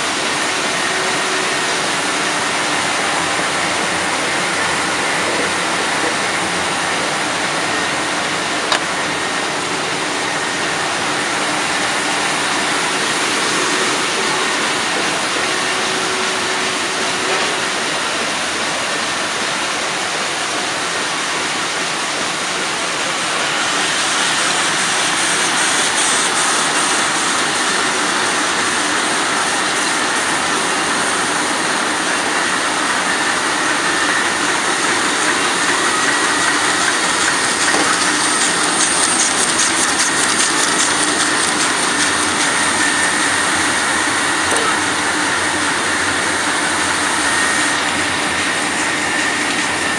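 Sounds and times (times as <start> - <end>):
printing press mechanical din: 0.0 - 49.9.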